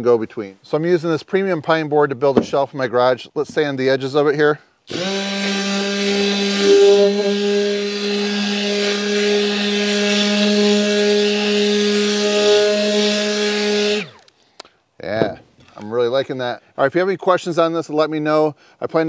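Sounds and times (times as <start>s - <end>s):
electric sander on wood: 4.9s - 14.3s.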